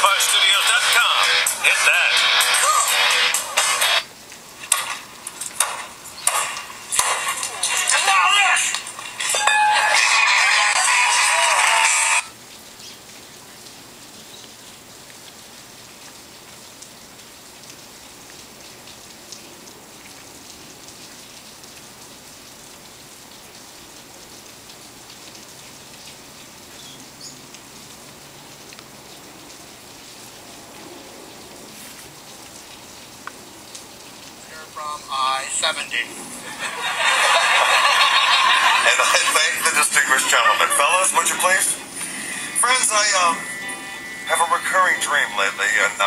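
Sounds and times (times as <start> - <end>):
steady hiss: 28.9 - 46.0.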